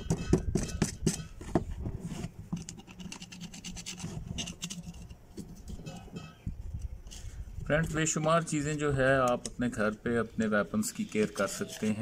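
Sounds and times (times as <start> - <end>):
screwdriver scraping dried mud: 2.0 - 5.8.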